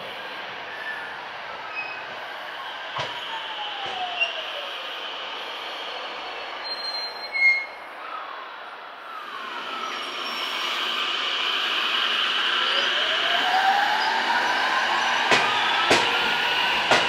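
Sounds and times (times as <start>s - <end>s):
train running noise: 0.0s - 17.0s
brake squeal: 6.6s - 8.2s
electric train inverter tone: 9.0s - 17.0s.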